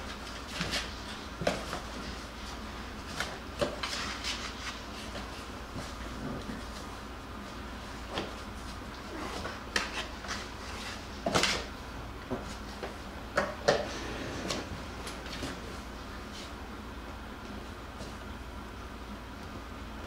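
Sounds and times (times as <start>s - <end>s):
puppies scrabbling in cardboard box: 0.0s - 7.0s.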